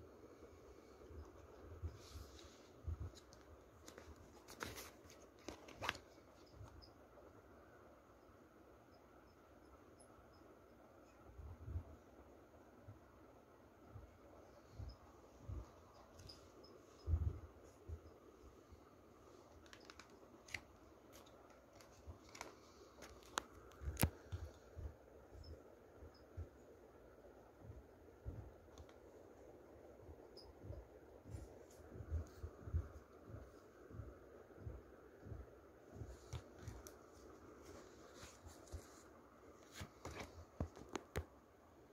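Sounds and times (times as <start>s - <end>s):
soft handling rustles: 0.8s - 6.9s, 14.9s - 25.5s, 35.9s - 41.4s
cards rustling and clicking: 3.1s - 6.4s, 19.4s - 24.6s.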